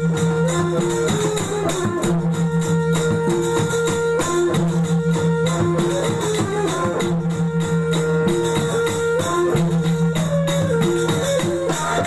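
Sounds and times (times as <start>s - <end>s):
hand drum strokes: 0.0s - 12.0s
jingling percussion: 0.0s - 12.0s.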